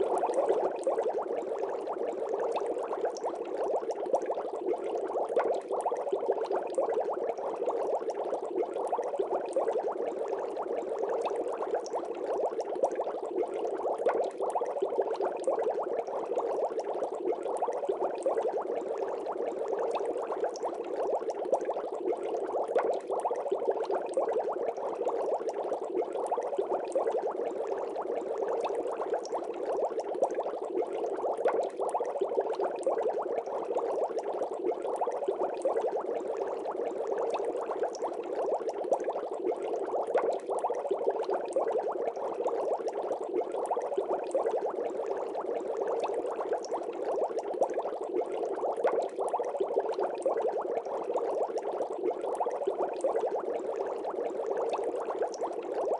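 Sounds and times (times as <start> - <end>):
aquarium air bubbling: 0.0 - 55.9.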